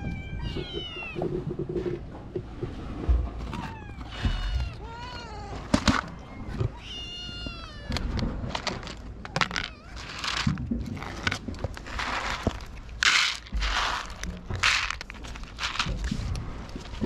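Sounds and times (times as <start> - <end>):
cat meowing: 0.0 - 1.2, 3.5 - 8.2
dry food rattling in plastic trays: 5.6 - 6.1, 8.0 - 17.0.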